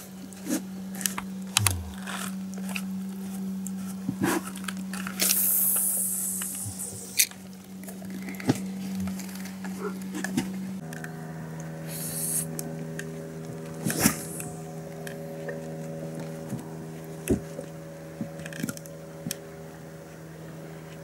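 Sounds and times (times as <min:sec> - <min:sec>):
boat motor humming: 0:00.6 - 0:03.9.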